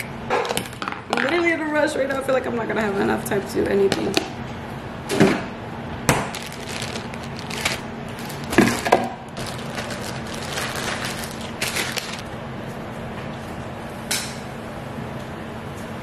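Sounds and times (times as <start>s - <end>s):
faint steady hum: 5.8s - 12.5s
plastic bag crinkling: 6.2s - 12.2s.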